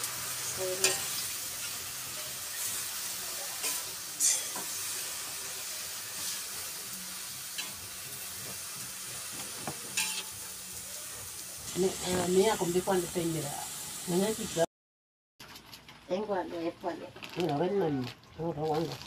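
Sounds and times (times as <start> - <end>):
greens sizzling in a wok: 0.0 - 14.7.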